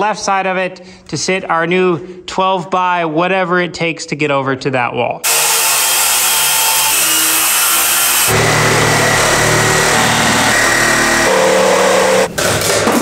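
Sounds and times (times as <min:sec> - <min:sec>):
power tool cutting: 0:05.2 - 0:12.7.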